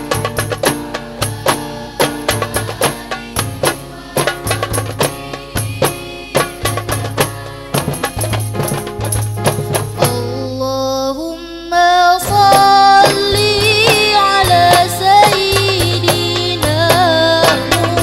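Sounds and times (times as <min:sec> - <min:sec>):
group singing in unison: 0:00.0 - 0:09.2
frame drums beating: 0:00.0 - 0:10.4, 0:12.2 - 0:18.0.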